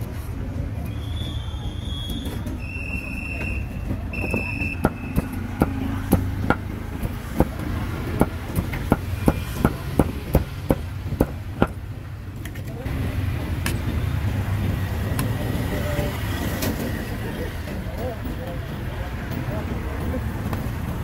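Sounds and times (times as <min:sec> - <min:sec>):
low traffic rumble: 0:00.0 - 0:21.0
cleaver chopping meat: 0:04.3 - 0:11.8.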